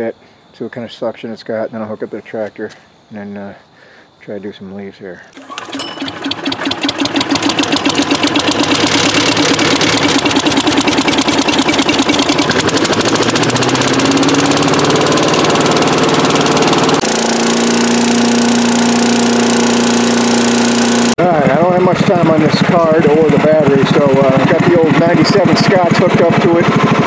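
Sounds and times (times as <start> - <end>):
small gasoline engine revving: 5.4 - 27.0.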